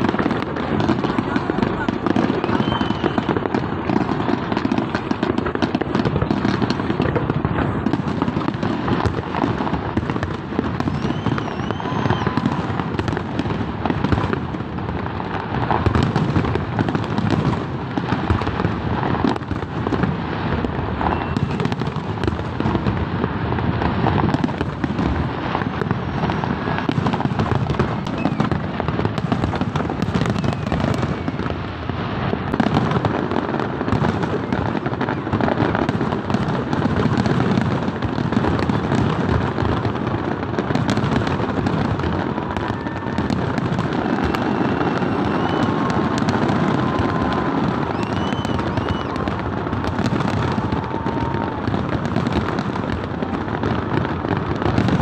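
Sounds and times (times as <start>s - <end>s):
firework whistles: 0.0s - 7.0s, 7.8s - 14.6s, 19.2s - 22.6s, 23.8s - 37.7s, 40.6s - 52.8s
fireworks booming and crackling: 0.0s - 55.0s.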